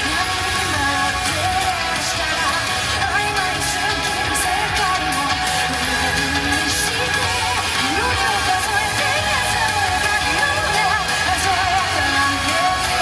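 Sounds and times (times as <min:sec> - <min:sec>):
pop-rock song with singing: 0:00.0 - 0:13.0.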